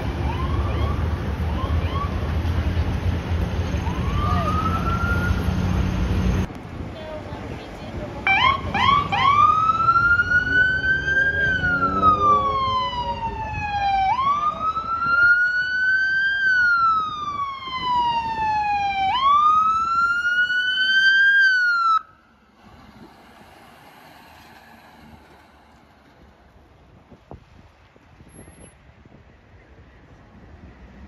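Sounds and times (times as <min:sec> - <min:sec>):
ambulance siren wailing: 0:00.0 - 0:02.4, 0:03.8 - 0:05.8, 0:08.3 - 0:22.2.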